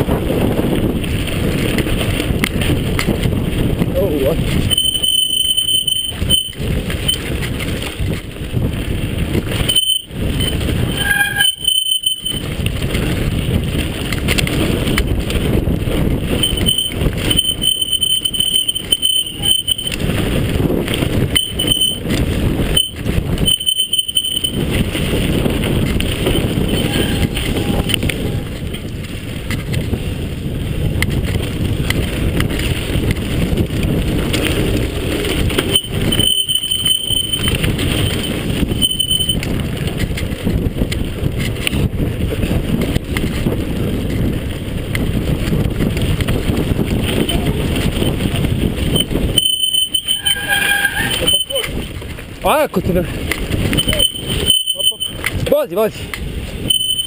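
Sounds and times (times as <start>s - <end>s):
bike rattling over rough trail: 0.0s - 57.0s
thin high squeal: 4.6s - 7.3s, 9.6s - 12.5s, 16.4s - 20.0s, 21.4s - 22.0s, 26.6s - 28.0s, 35.6s - 39.4s, 48.9s - 51.8s.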